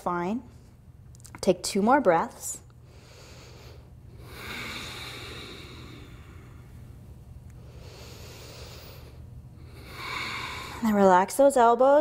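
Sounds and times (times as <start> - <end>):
woman exhaling slowly: 4.2 - 6.7, 9.7 - 11.0.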